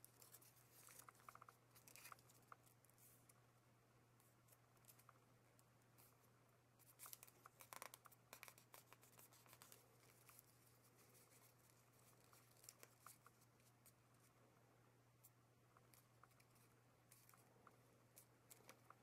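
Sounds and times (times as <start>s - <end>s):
paper rustling and crinkling: 0.0s - 3.2s, 6.8s - 13.7s
low steady hum: 0.0s - 19.0s.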